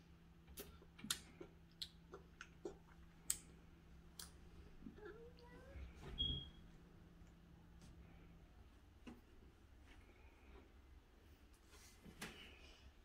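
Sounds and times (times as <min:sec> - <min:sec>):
toddler mouth and lip smacks: 0:00.5 - 0:03.5.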